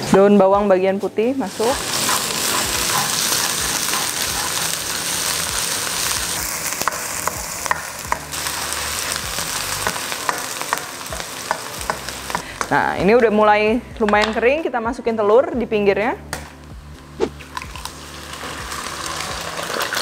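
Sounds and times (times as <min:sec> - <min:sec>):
spatula scraping wok: 0:00.9 - 0:12.8
onions sizzling in hot oil: 0:00.9 - 0:13.6, 0:17.4 - 0:20.0.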